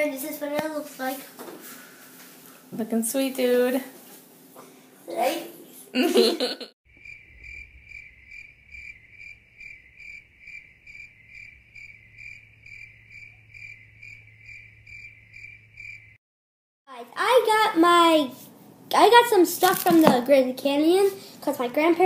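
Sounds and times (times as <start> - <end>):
low hum: 6.9 - 16.1
cricket chirping: 6.9 - 16.2.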